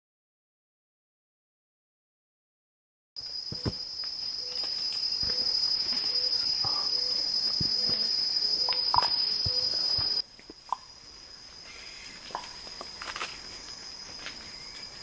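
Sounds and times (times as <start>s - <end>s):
insect shrilling: 3.3s - 10.9s.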